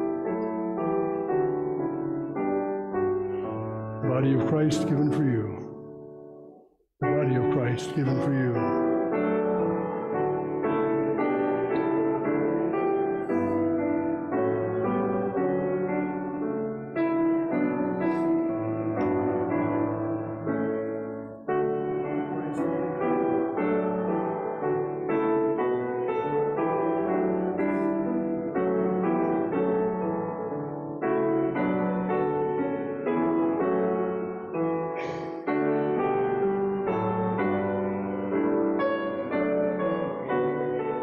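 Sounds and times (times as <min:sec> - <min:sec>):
piano playing slow chords: 0:00.0 - 0:41.0.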